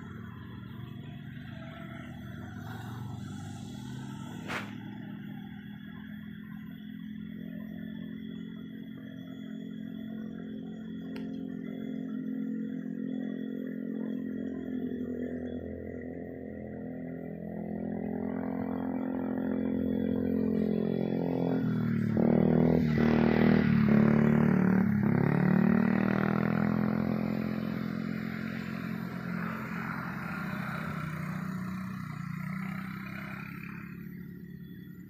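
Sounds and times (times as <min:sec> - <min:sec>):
vehicle engine passing by: 0:00.0 - 0:05.6, 0:16.7 - 0:34.9.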